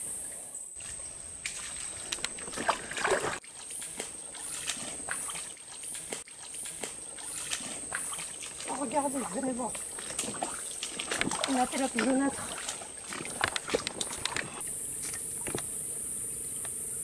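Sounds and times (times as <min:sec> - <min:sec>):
insects high-pitched whine: 0:00.0 - 0:17.0
clicks and rustles: 0:13.1 - 0:15.7.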